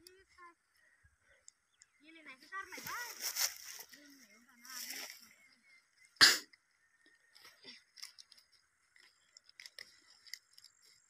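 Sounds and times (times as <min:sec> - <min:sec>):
leaves crackling and rustling: 0:02.3 - 0:05.4.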